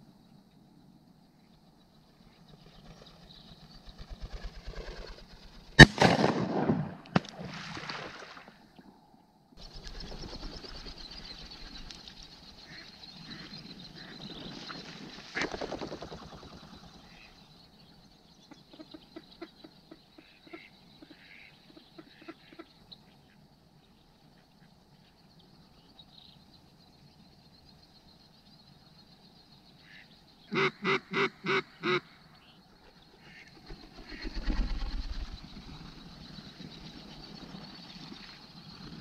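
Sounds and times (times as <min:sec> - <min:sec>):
shotgun firing: 0:05.8 - 0:07.5
duck quacks: 0:29.9 - 0:32.1.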